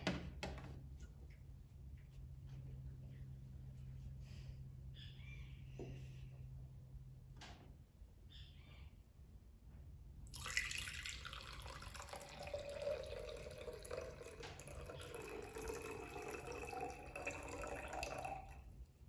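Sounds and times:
water pouring into glass pitcher: 10.3 - 18.8.

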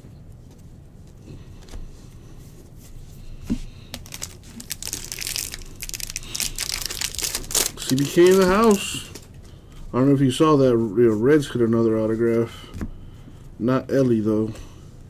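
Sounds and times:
wrapper crinkling and tearing: 3.9 - 9.4.

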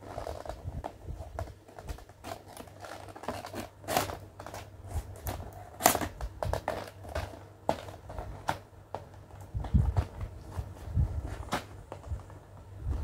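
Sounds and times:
scissors snipping plastic: 1.7 - 8.6.

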